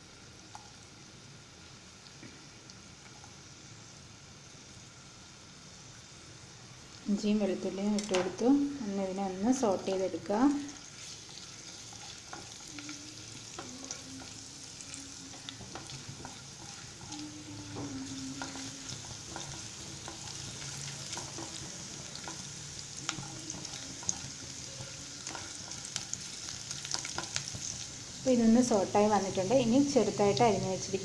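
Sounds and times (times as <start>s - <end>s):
ginger and garlic sizzling in oil: 0.0s - 31.0s
spatula scraping and tapping pan: 11.0s - 14.4s, 15.3s - 27.9s.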